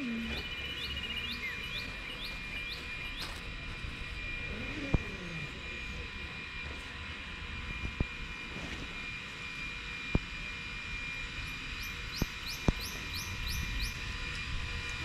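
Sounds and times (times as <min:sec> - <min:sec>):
bird chirping: 0:00.0 - 0:03.4
steady low rumble: 0:00.0 - 0:15.0.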